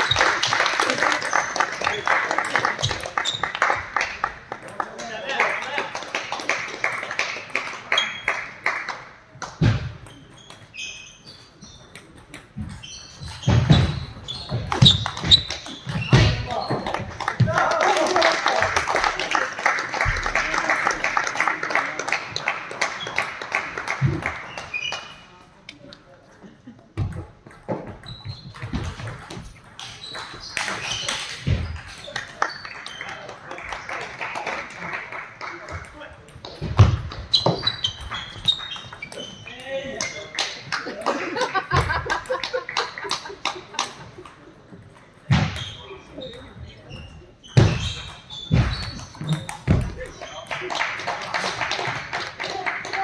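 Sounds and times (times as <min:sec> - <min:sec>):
shoes squeaking on floor: 0:00.0 - 0:00.6, 0:02.8 - 0:03.8, 0:07.9 - 0:08.4, 0:09.6 - 0:17.1, 0:24.0 - 0:25.4, 0:27.0 - 0:33.3, 0:36.6 - 0:40.3, 0:44.7 - 0:50.5.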